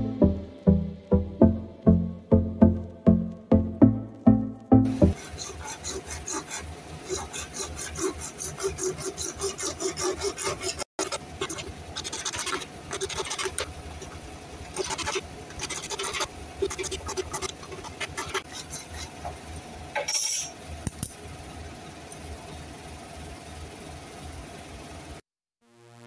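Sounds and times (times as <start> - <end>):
hacksaw cutting plastic pipe: 5.0 - 13.7, 14.8 - 19.1.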